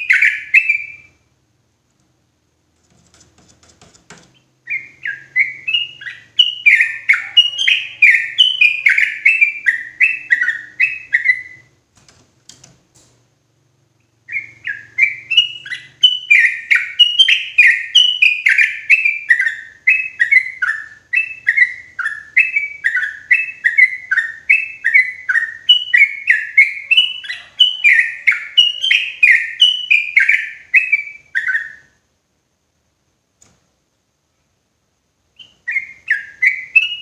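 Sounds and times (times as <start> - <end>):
bird singing downward-sliding notes: 4.6 - 11.7.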